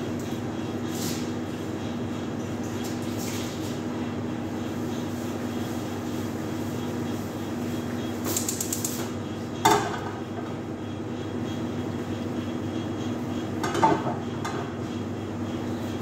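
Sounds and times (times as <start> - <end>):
steady machine hum: 0.0 - 16.0.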